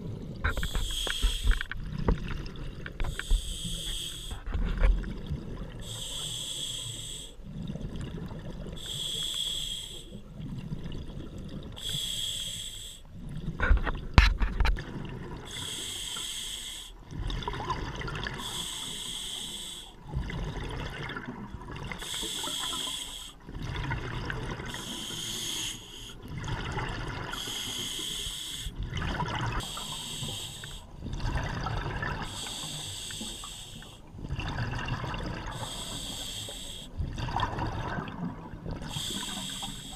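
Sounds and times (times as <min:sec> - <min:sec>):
diver breathing through regulator: 0:00.5 - 0:01.8, 0:03.0 - 0:04.6, 0:05.8 - 0:07.4, 0:08.8 - 0:10.2, 0:11.8 - 0:13.1, 0:15.5 - 0:17.0, 0:18.3 - 0:20.0, 0:22.0 - 0:23.4, 0:24.6 - 0:26.2, 0:27.3 - 0:28.8, 0:29.6 - 0:31.0, 0:32.2 - 0:34.1, 0:35.5 - 0:37.0, 0:38.8 - 0:39.9
rush of bubbles: 0:31.1 - 0:32.3, 0:34.2 - 0:35.6, 0:37.0 - 0:39.5.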